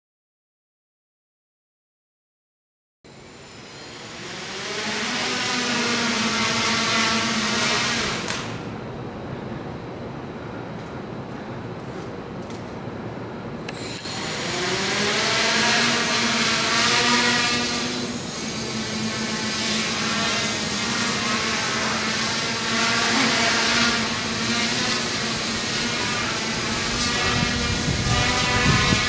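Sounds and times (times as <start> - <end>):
quadcopter motors buzzing whine: 3.1 - 9.1, 13.6 - 29.0.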